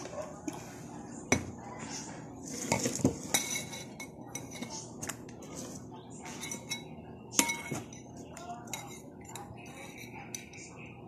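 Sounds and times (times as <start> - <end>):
spoon and fork clinking on plate: 2.7 - 4.8, 6.2 - 10.8.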